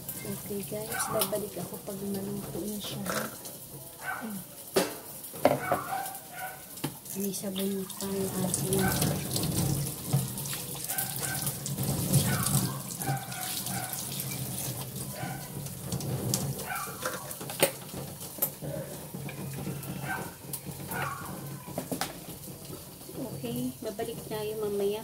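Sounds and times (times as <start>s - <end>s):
tap water running into sink: 0.0s - 3.8s, 4.7s - 25.0s
cutting board and dishes knocking: 4.8s - 5.9s.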